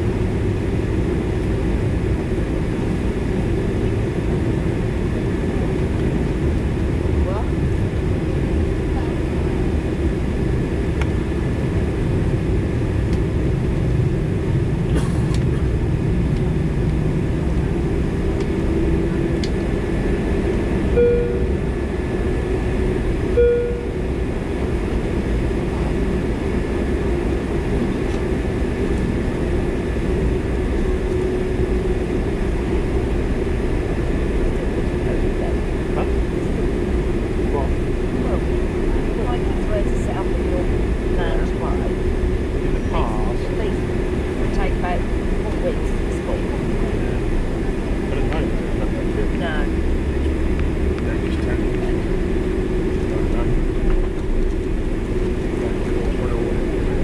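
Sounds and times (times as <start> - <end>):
airliner cabin hum: 0.0 - 57.0
short tones: 21.0 - 21.5, 23.4 - 24.0.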